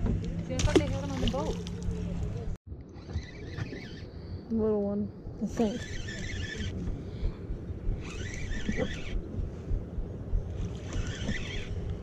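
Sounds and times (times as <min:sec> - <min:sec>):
water noise: 0:00.0 - 0:04.1
fishing reel whirring: 0:03.0 - 0:04.1, 0:05.6 - 0:06.8, 0:08.0 - 0:09.2, 0:10.6 - 0:12.0
wind noise on microphone: 0:05.2 - 0:12.0.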